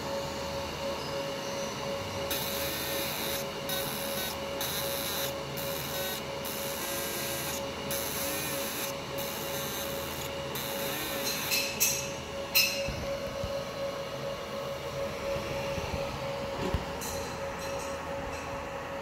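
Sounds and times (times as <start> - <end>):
steady machine hum with tone: 0.0 - 19.0
laser hissing on metal: 2.3 - 11.7.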